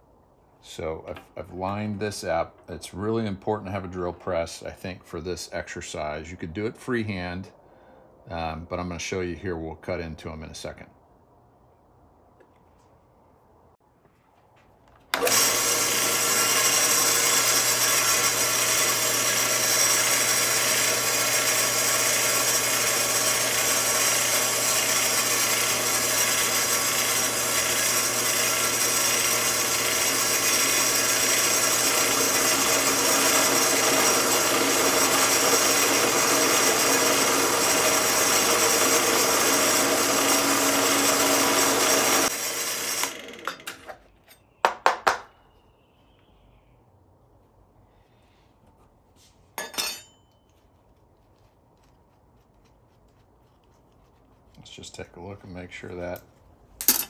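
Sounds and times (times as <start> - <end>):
drill press motor hum: 15.1 - 44.0
motor spinning down: 15.2 - 43.5
drill bit cutting steel: 15.2 - 43.8.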